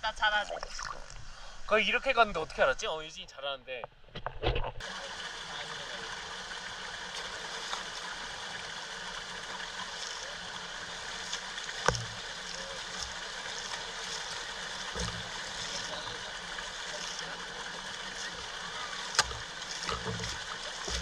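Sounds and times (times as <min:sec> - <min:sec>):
stream water rushing: 0:04.8 - 0:21.0.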